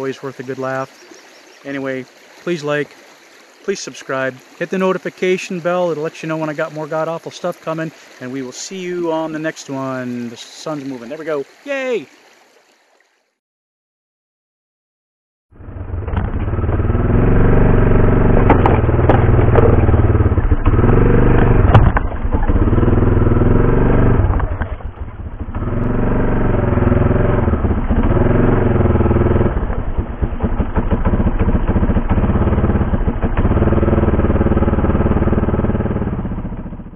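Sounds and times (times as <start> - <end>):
atv engine running: 15.6 - 36.9
knocks and rattles: 18.2 - 22.8.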